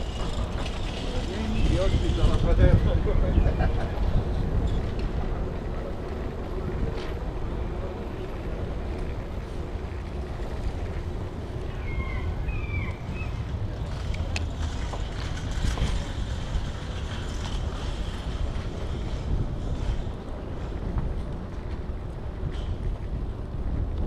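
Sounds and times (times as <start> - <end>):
bicycle tyres on brick paving: 0.0 - 24.0
wind rumble: 0.0 - 24.0.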